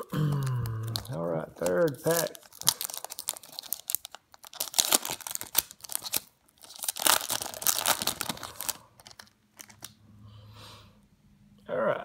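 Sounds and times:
foil wrapper tearing and crinkling: 0.2s - 9.9s.

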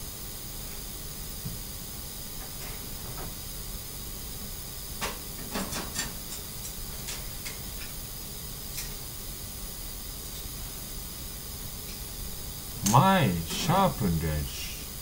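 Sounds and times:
recording hiss: 3.2s - 15.0s.

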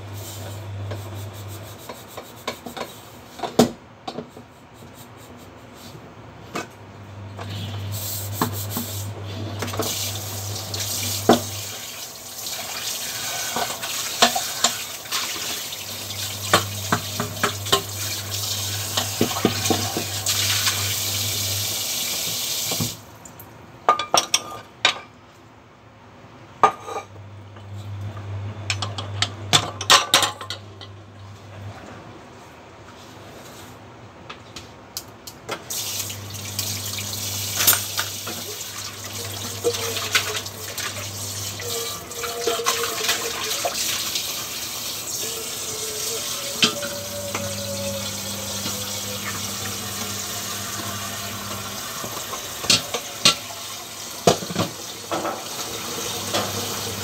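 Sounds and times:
low background hum: 0.0s - 22.2s, 22.8s - 57.0s
tap water running into sink: 9.6s - 23.0s, 35.7s - 57.0s.

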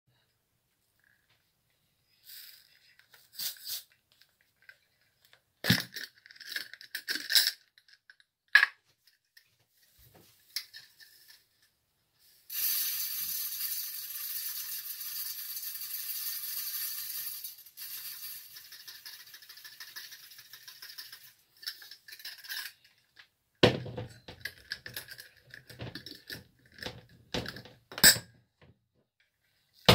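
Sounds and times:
glass jar clinks and knocks: 23.6s - 28.3s.

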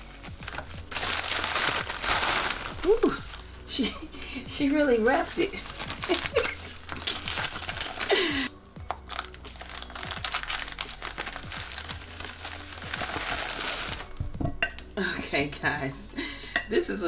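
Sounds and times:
plastic mailer crinkling: 0.0s - 3.5s, 5.2s - 14.2s.

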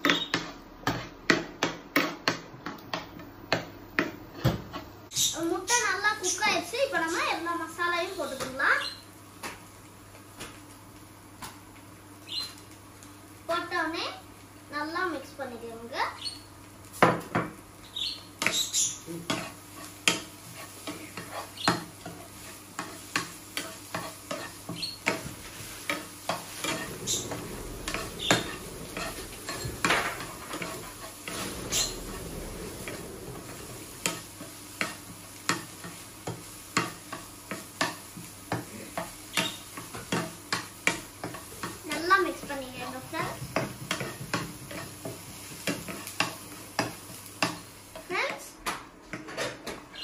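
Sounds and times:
food sizzling: 0.0s - 50.0s
metal spoon scraping frying pan: 18.4s - 38.0s.

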